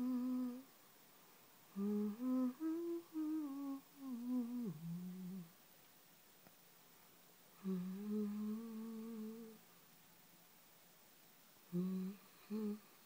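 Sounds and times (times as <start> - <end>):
woman humming a slow tune: 0.0 - 0.7, 1.7 - 5.6, 7.6 - 9.6, 11.7 - 13.0.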